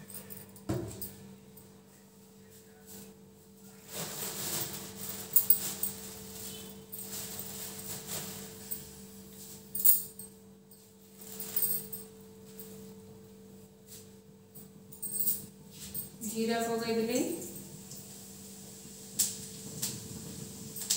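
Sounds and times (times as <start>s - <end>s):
kitchenware clinking and rustling: 0.0s - 1.3s, 3.9s - 12.8s.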